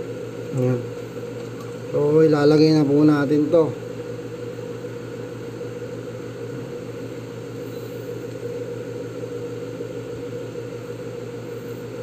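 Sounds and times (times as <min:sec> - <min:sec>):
small motor humming: 0:03.5 - 0:12.0.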